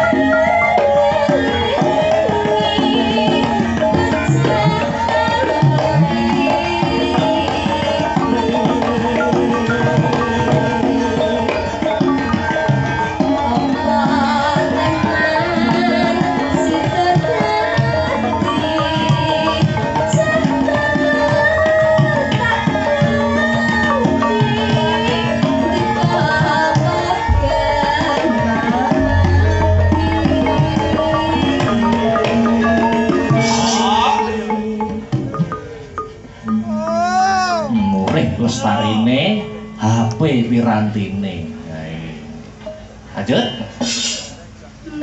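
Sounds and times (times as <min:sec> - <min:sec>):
woman singing into microphone: 0:00.0 - 0:35.4
hand drum strokes: 0:21.8 - 0:38.2
ringing metallophone notes: 0:27.3 - 0:38.0.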